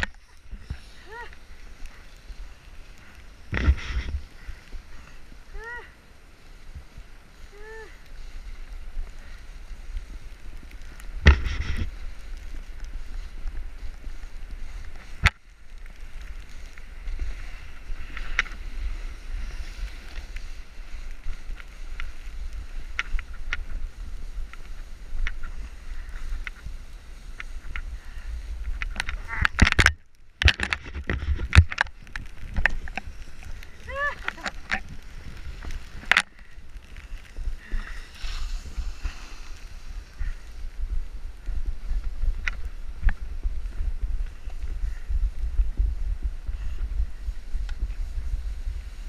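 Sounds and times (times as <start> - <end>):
snowboard scraping over snow: 0.0 - 29.5, 31.0 - 49.0
rider falling in snow: 0.0 - 49.0
wind buffeting microphone: 30.6 - 49.0.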